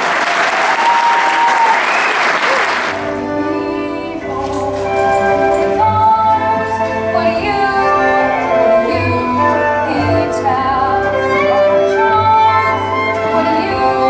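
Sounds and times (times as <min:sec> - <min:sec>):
instrumental accompaniment: 0:02.9 - 0:14.0
girl singing a show tune: 0:03.1 - 0:14.0.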